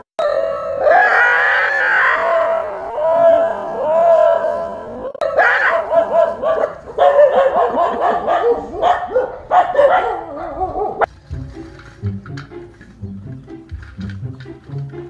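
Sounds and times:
dog barking: 5.2 - 11.1.

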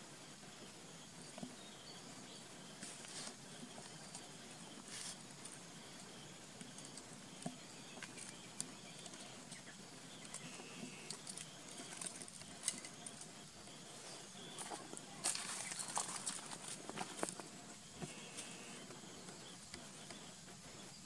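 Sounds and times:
faint steady background hiss: 0.0 - 21.0
pebbles clicking under crawling animal: 2.8 - 13.5, 14.4 - 20.3.

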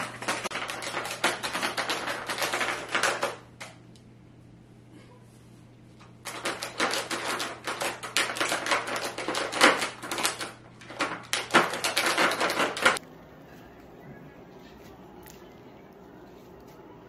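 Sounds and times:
plastic pieces rattling and clacking: 0.0 - 3.4, 6.3 - 13.0.

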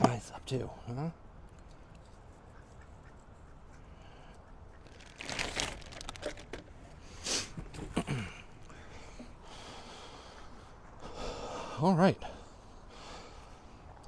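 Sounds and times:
plastic packaging crinkling: 4.9 - 6.7.

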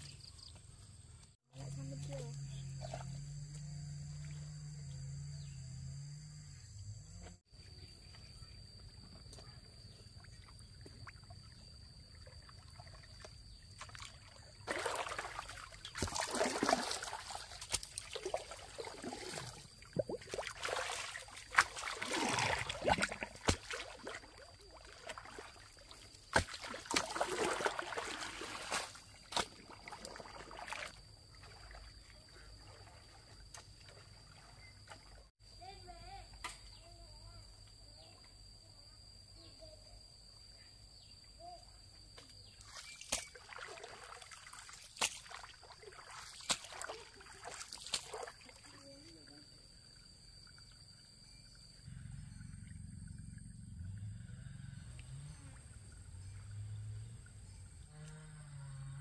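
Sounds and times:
water splashing and sloshing: 10.0 - 35.3, 42.2 - 51.6.

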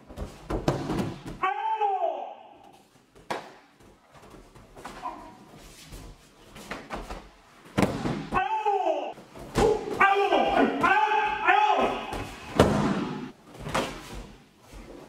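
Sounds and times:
person shouting: 1.3 - 2.6, 8.3 - 12.5.

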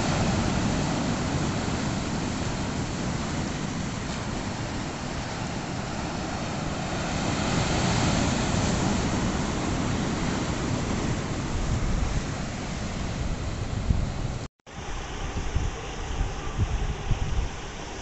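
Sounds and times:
waves breaking over rocks: 0.0 - 14.4
wind buffeting microphone: 0.0 - 18.0.

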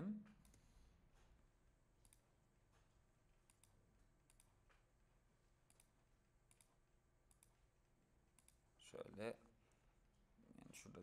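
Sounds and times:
faint computer mouse clicks: 2.0 - 2.2, 3.4 - 4.8, 5.6 - 5.9, 6.5 - 6.7, 7.3 - 7.6, 8.3 - 8.6.

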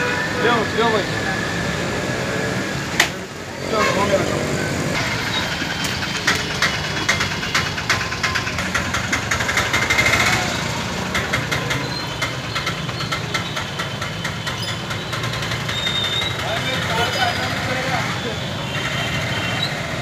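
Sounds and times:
vehicle engine idling: 4.6 - 18.3
fast clatter of clicks: 5.0 - 16.9.

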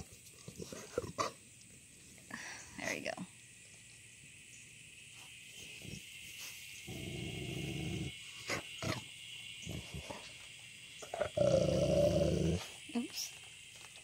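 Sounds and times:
dog growling low: 6.9 - 8.2, 11.0 - 12.7.

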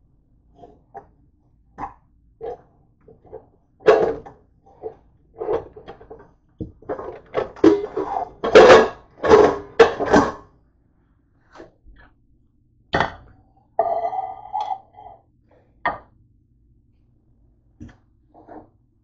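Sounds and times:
dishes clattering: 6.9 - 10.4.

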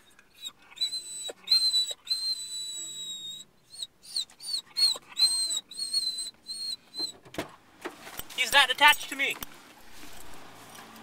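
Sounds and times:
dog whining: 0.0 - 7.2.

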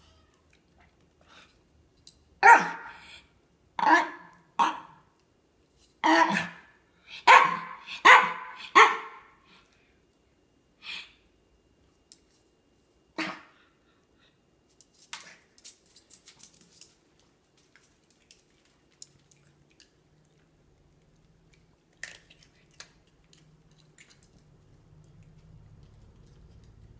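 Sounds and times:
dog barking: 2.4 - 3.0, 3.8 - 5.0, 6.0 - 9.3.

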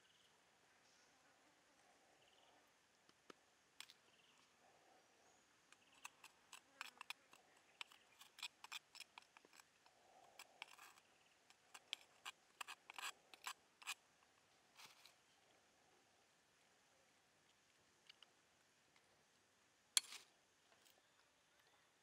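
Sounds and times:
knife scraping stone mortar: 5.8 - 14.0.

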